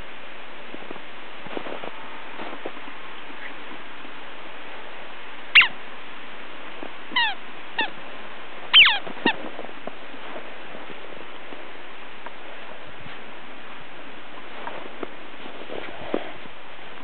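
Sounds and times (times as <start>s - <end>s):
puppy yipping: 7.2s - 7.9s, 8.8s - 9.0s.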